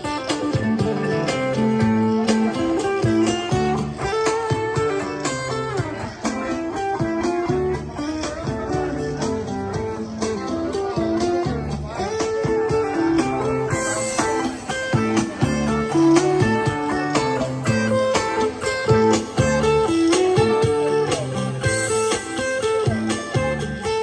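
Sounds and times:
acoustic guitar through speaker: 0:00.0 - 0:24.0.

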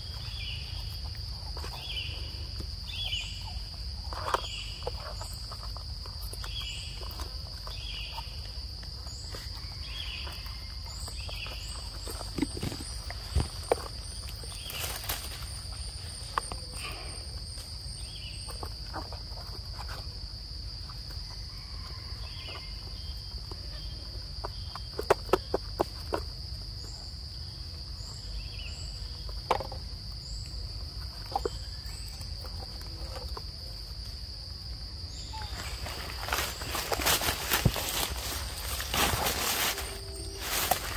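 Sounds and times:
rustling in dry leaves: 0:00.0 - 0:20.1, 0:34.9 - 0:40.9
high-pitched insect drone: 0:35.1 - 0:40.9.

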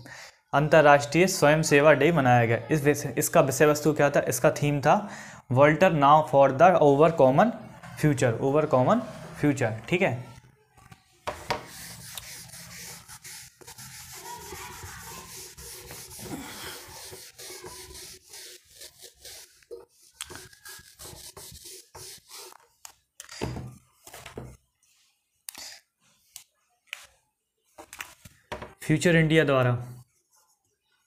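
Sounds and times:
hand rubbing on writing surface: 0:11.4 - 0:22.6.

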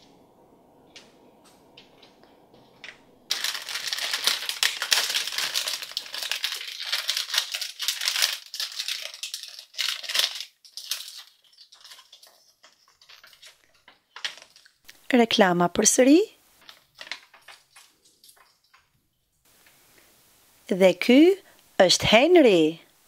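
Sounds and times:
plastic bag crinkling: 0:03.3 - 0:15.0, 0:16.6 - 0:18.8.

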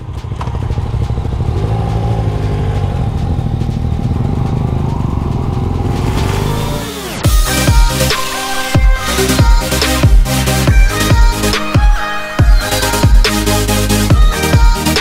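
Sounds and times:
motorcycle engine pulling away: 0:00.0 - 0:07.3.

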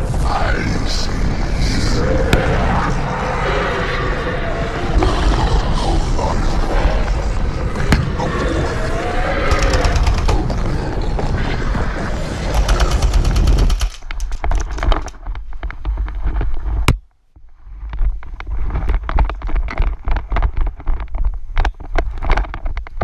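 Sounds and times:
wind rumble: 0:00.0 - 0:23.0
gear clicks and knocks: 0:09.5 - 0:10.6, 0:12.4 - 0:17.0, 0:17.8 - 0:23.0
microphone handling noise: 0:09.5 - 0:23.0.

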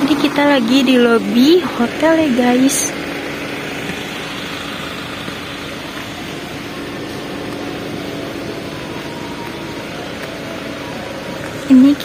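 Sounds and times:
machine hum: 0:00.0 - 0:12.0.

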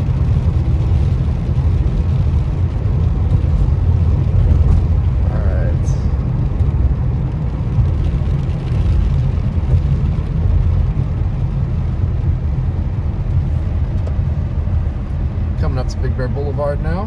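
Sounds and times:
car interior rumble: 0:00.0 - 0:17.0
tyres on wet pavement: 0:00.0 - 0:17.0.

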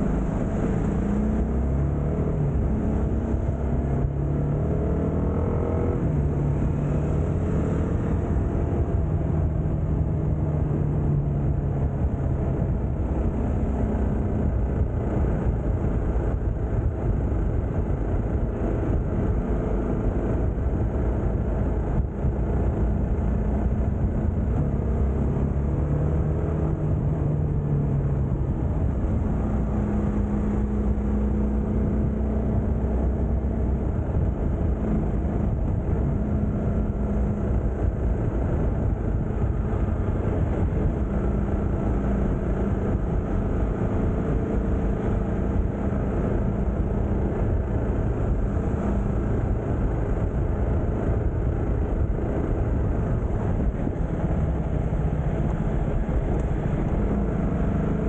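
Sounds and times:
dense rush of noise: 0:00.0 - 0:58.0
motorcycle engine cruising: 0:00.0 - 0:58.0.

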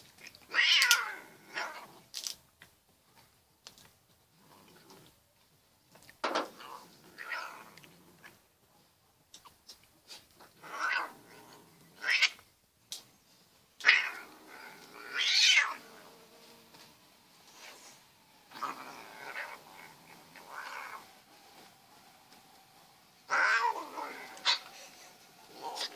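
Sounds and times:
cat yowling: 0:00.5 - 0:01.8, 0:13.8 - 0:15.8, 0:23.3 - 0:24.6.

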